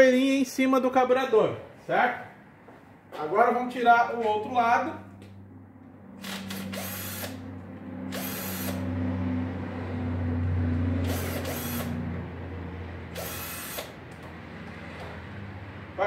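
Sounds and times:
cordless drill running: 0:06.2 - 0:07.4, 0:08.1 - 0:08.9, 0:11.0 - 0:12.0, 0:13.1 - 0:14.0.

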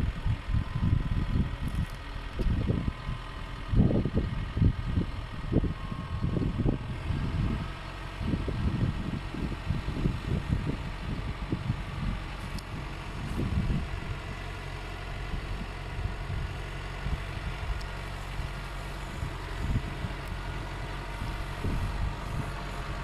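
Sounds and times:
tractor engine running: 0:00.0 - 0:23.0
wind buffeting microphone: 0:00.0 - 0:23.0.

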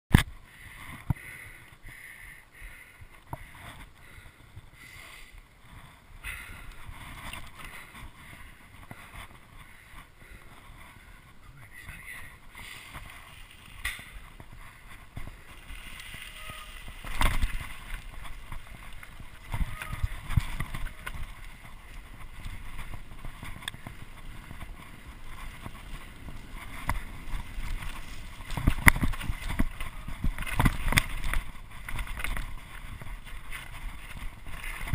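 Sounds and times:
tyres and wind rumble: 0:00.1 - 0:34.9
bike knocks and rattles: 0:12.6 - 0:34.9.

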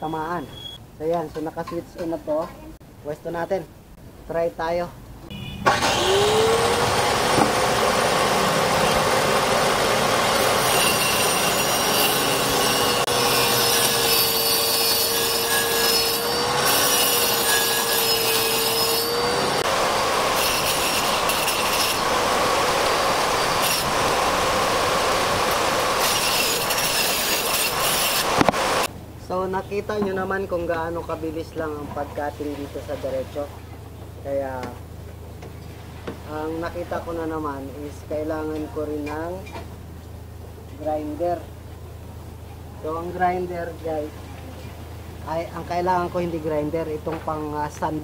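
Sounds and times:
angle grinder saw cutting sheet: 0:05.6 - 0:28.9.

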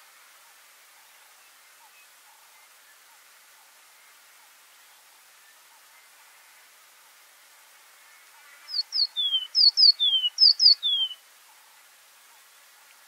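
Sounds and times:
bird singing whistled notes: 0:08.7 - 0:11.2.

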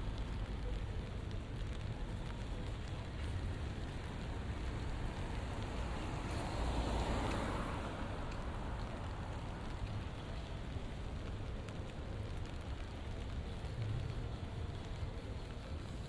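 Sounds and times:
light rain on wet street: 0:00.0 - 0:16.0
low traffic rumble: 0:00.0 - 0:16.0
car tyres hissing on wet road: 0:01.2 - 0:16.0.

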